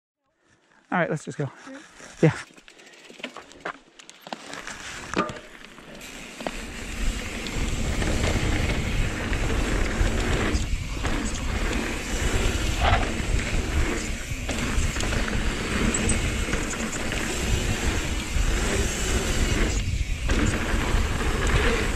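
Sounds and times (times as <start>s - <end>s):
bike tyres rolling on dirt: 0.5s - 21.9s
wind buffeting microphone: 6.7s - 21.9s.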